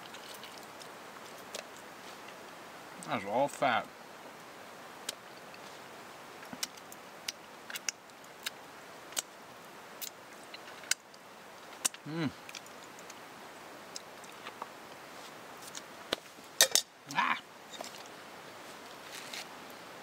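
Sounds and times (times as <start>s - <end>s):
person chewing: 0.0s - 0.9s
small clicks and smacks: 6.4s - 9.3s
person humming: 12.0s - 12.4s, 17.1s - 17.4s.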